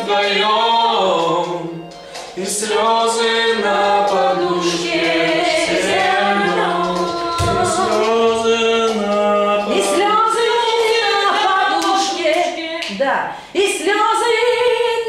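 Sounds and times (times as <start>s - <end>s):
person singing unaccompanied: 2.4s - 12.8s.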